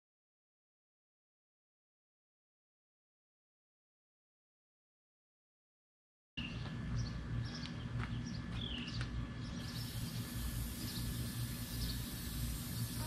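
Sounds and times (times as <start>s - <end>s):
small birds chirping: 6.4s - 13.0s
steady low hum: 6.4s - 13.0s.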